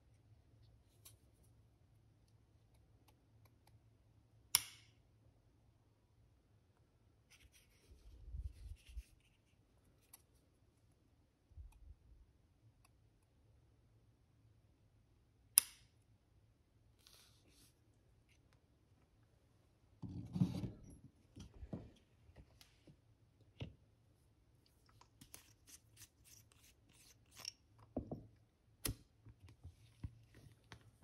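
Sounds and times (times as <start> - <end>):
scissors snipping thread: 4.5 - 4.9, 15.6 - 15.9.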